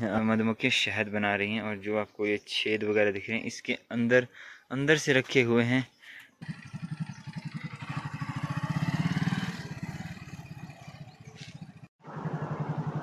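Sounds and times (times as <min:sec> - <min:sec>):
motorcycle engine running: 0:06.4 - 0:13.0.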